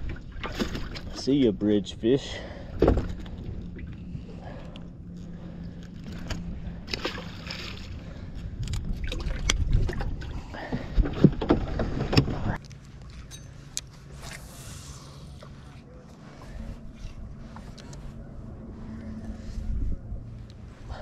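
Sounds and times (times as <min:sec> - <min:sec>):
steady low hum: 0:00.0 - 0:21.0
water splashing: 0:06.0 - 0:08.2.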